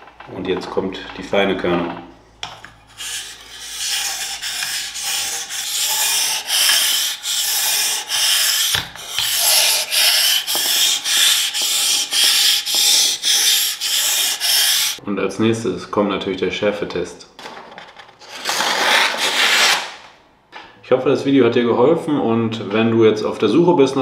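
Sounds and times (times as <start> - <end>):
knife scraping on whetstone: 2.8 - 15.0.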